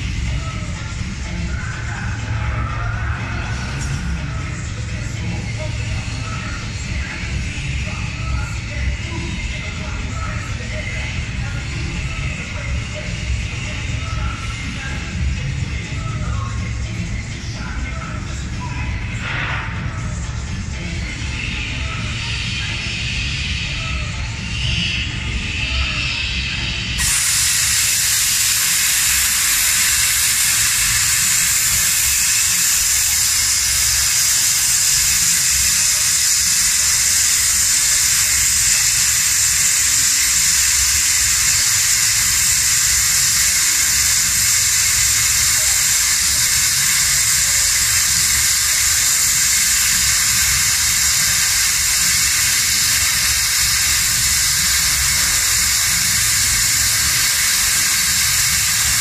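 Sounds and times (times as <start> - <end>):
plasma cutter hissing: 18.8 - 59.0.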